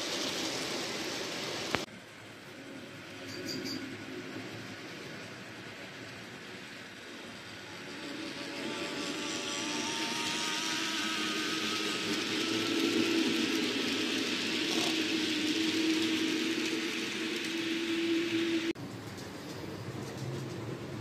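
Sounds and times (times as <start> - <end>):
model train wheels on rails: 0.0 - 21.0
small electric motor whirring: 6.5 - 18.8.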